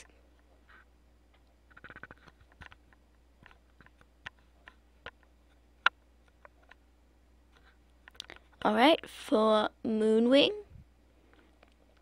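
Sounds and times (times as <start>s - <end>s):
faint clicks and taps: 0.0s - 6.9s, 7.5s - 8.7s, 11.3s - 12.0s
steady low hum: 0.0s - 12.0s.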